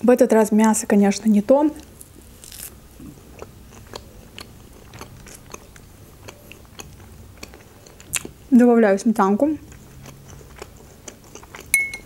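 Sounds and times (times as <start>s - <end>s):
close chewing mouth sounds: 2.5s - 8.5s, 9.3s - 11.8s.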